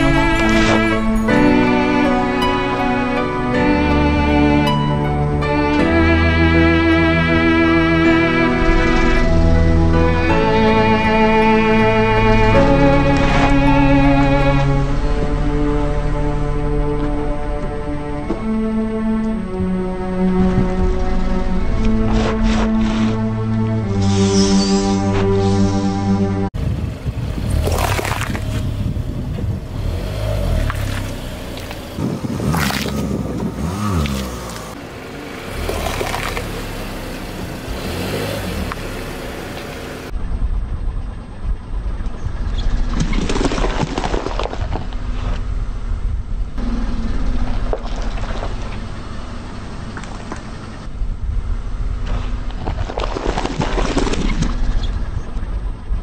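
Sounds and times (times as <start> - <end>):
car engine rumble: 0.0 - 56.0
peppers crunching under car tyre: 27.6 - 28.7, 30.6 - 34.7.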